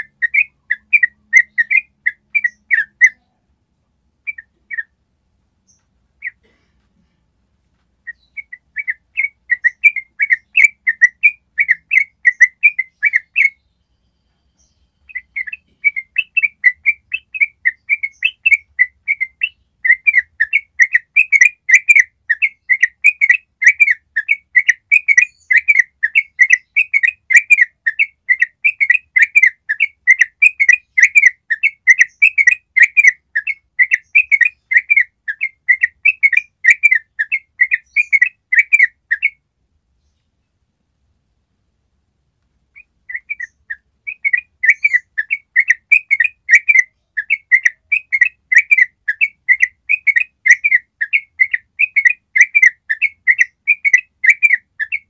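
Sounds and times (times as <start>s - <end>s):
bulbul bubbly chirping song: 42.8s - 55.0s.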